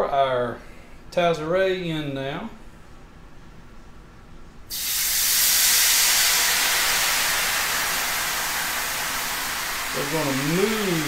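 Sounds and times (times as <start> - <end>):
loud hiss and sizzle in pan: 4.7 - 11.0.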